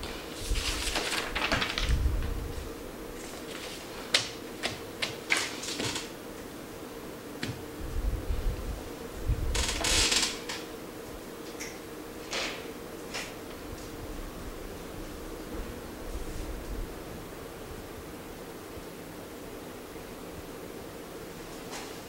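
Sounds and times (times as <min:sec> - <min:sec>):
rustling: 0:00.0 - 0:06.6
steady low hum: 0:00.0 - 0:22.0.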